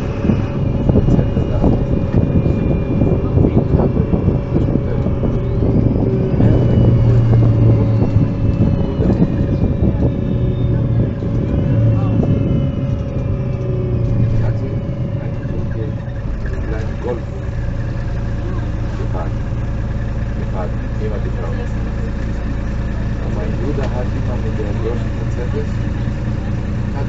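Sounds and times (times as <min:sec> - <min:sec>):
bus diesel engine drone: 0:00.0 - 0:27.0
engine whine rising: 0:00.0 - 0:27.0.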